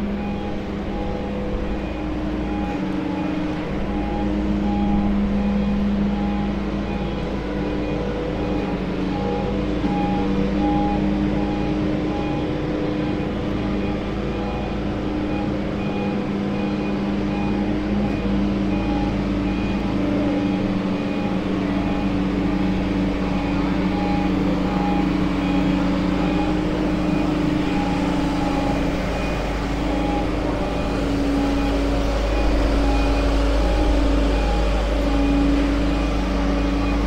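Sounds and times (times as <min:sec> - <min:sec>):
truck engine humming: 0:00.0 - 0:37.0
faint repeating beep: 0:07.8 - 0:37.0.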